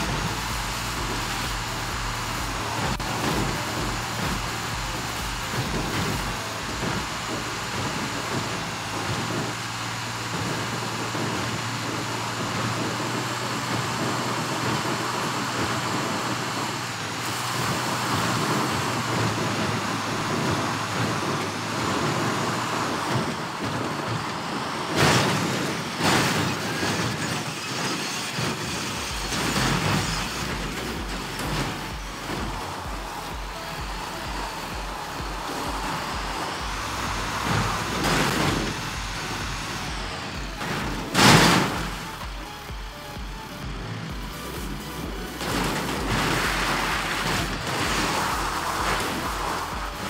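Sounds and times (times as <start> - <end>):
rolling and body rumble: 0.0 - 50.0
vehicle engine humming: 0.0 - 50.0.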